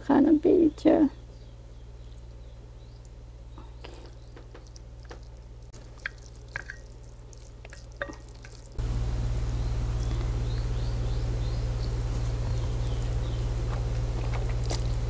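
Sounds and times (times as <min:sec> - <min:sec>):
steady low hum: 0:00.0 - 0:15.0
chopsticks stirring wet noodles: 0:03.6 - 0:15.0.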